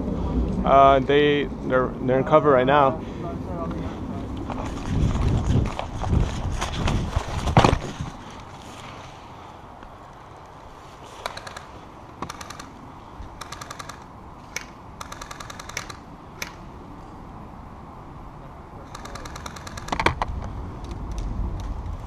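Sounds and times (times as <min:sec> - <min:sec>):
airsoft gun bursts: 0:11.1 - 0:12.7, 0:13.4 - 0:16.6, 0:18.9 - 0:20.0.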